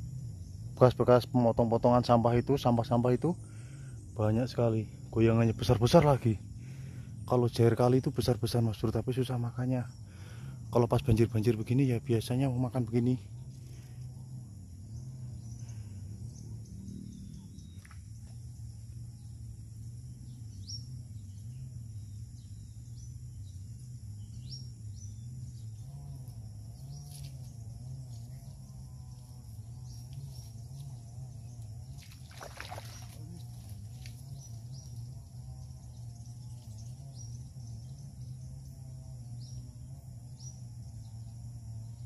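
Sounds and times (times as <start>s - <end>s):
insect buzz: 0.0s - 42.0s
low hum: 4.8s - 42.0s
fish splashing out of water: 32.0s - 33.4s.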